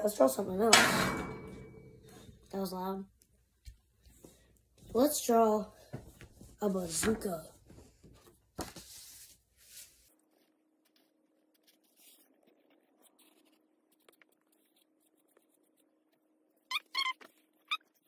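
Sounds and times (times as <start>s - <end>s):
pencil scratching on paper: 9.8s - 16.7s.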